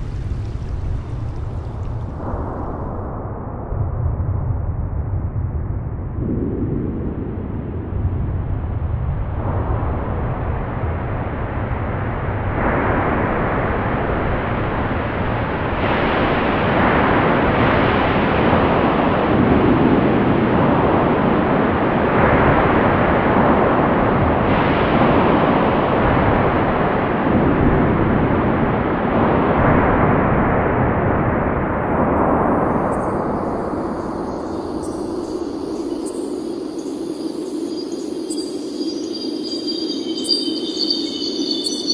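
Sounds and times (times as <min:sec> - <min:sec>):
waterfall roaring: 0:00.0 - 0:02.4.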